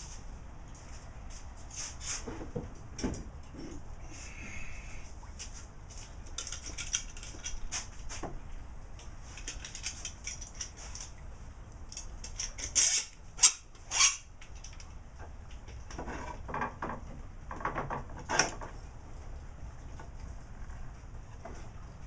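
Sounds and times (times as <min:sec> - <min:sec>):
clamp scraping and rattling: 0:15.9 - 0:18.7.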